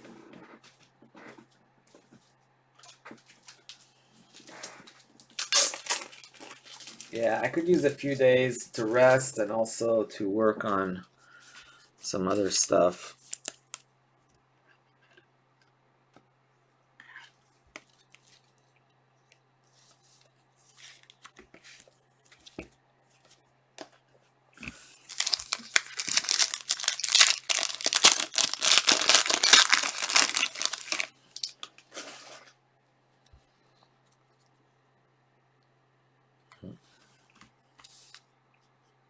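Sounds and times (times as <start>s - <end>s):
foil wrapper tearing and crinkling: 5.2s - 7.3s, 25.0s - 31.6s
cards rustling and clicking: 25.1s - 32.1s.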